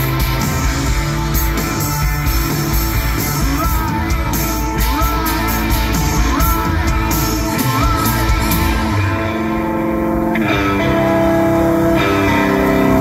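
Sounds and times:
live rock band playing: 0.0s - 13.0s
rising sliding note: 8.7s - 13.0s.

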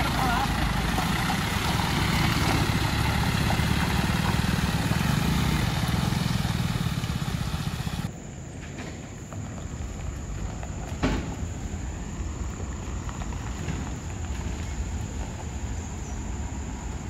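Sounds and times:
lorry diesel engine running: 0.0s - 8.1s, 9.4s - 17.0s
motorcycle passing: 0.0s - 8.1s
distant traffic: 0.0s - 17.0s.

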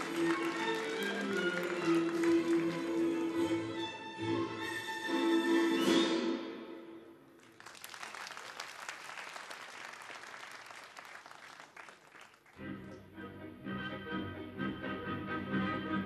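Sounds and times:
audience applauding: 0.0s - 3.7s, 7.4s - 12.6s
music: 0.0s - 7.1s, 12.6s - 16.0s.

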